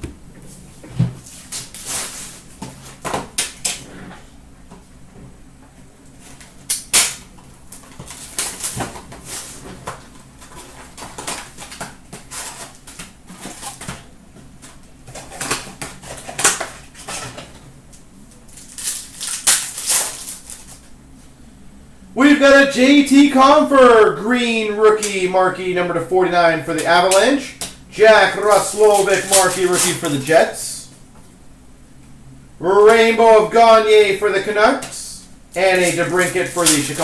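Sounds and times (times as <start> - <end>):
card packs crinkling: 6.4 - 17.5, 18.4 - 20.9, 26.8 - 30.8, 34.8 - 37.0.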